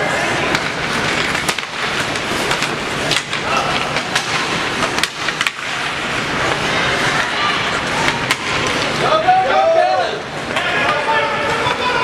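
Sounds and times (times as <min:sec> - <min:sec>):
skates scraping ice: 0:00.0 - 0:12.0
sticks and puck clacking: 0:00.0 - 0:12.0
faint spectator chatter: 0:05.7 - 0:12.0.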